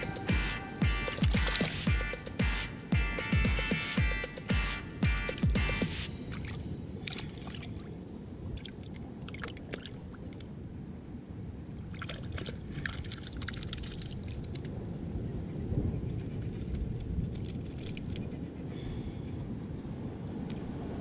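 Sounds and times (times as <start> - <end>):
sea water sloshing and splashing: 1.2 - 1.9, 6.2 - 10.6, 11.7 - 14.8
low rumble of water: 5.4 - 21.0.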